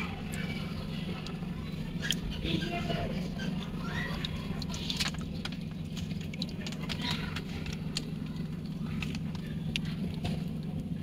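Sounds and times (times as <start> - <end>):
low machine hum: 0.0 - 11.0
water splashing in tub: 2.0 - 10.7.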